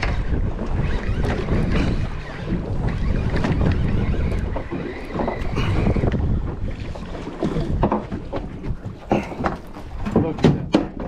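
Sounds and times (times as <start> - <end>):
fishing reel cranking: 0.0 - 6.2
water wash against boat: 0.0 - 11.0
wind buffeting microphone: 0.0 - 11.0.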